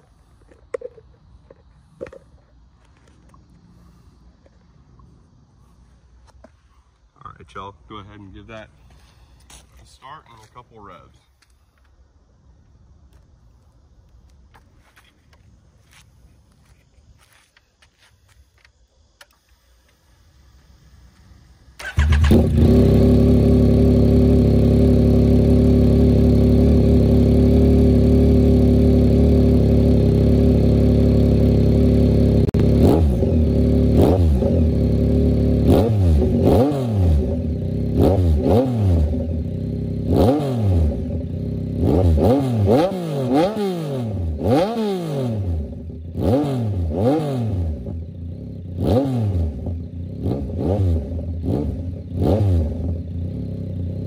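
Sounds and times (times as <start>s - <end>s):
motorcycle engine idling and revving: 16.6s - 54.0s.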